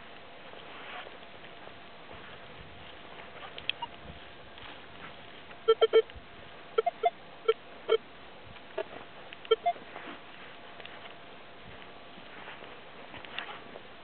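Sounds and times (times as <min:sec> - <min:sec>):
metal detector beeping: 0:05.7 - 0:06.1, 0:06.8 - 0:08.0, 0:08.8 - 0:09.8.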